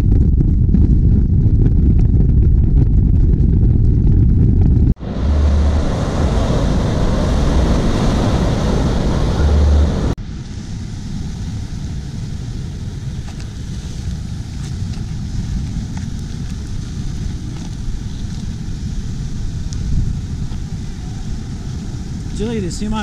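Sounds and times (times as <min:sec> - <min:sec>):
wind rumbling on microphone: 0:00.0 - 0:23.0
waves washing against rocks: 0:05.0 - 0:10.2
ocean surf breaking: 0:05.0 - 0:14.4.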